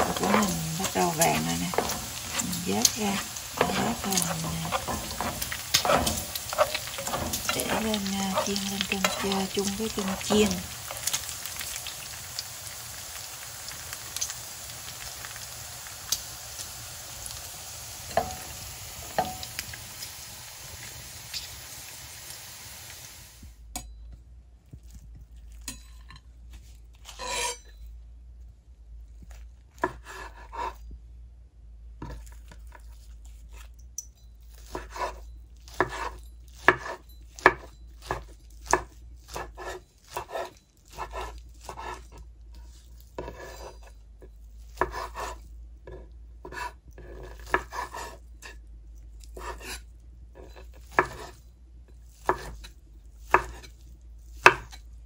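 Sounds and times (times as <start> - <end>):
knife chopping on wooden board: 0.0 - 11.2, 44.8 - 45.3, 45.9 - 48.1, 50.9 - 51.3, 52.2 - 52.6, 53.3 - 53.7, 54.4 - 54.8.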